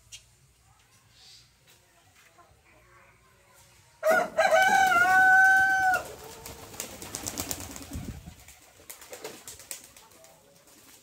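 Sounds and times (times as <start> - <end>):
rooster crowing: 4.0 - 6.2.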